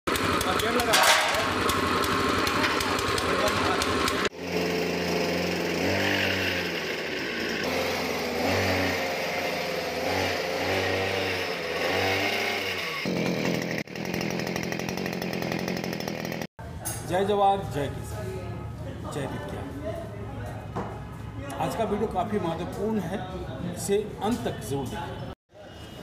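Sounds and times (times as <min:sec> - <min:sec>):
small engine power tool revving: 0:00.1 - 0:16.5.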